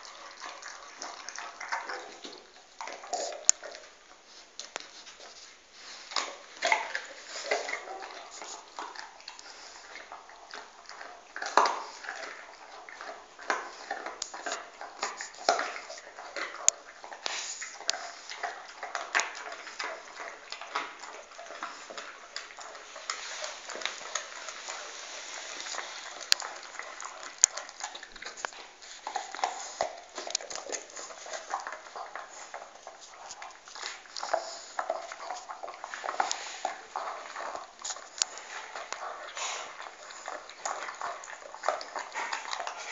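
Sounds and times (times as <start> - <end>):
dog chewing a bone: 0.0 - 42.9.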